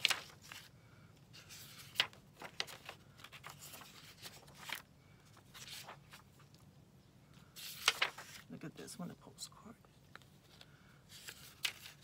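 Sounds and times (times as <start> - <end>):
paper rustling and flicking: 0.0 - 0.7, 1.3 - 6.6, 7.4 - 8.5, 10.1 - 12.0.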